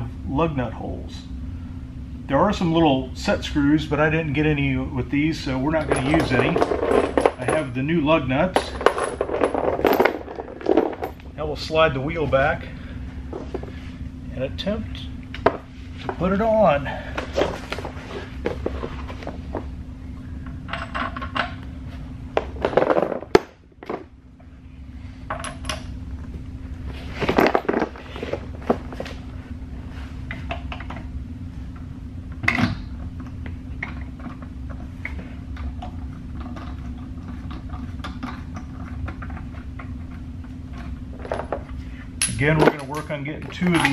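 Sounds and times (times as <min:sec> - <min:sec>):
steady low hum: 0:00.0 - 0:43.9
metal clinks and scrapes: 0:05.8 - 0:07.8, 0:41.2 - 0:43.9.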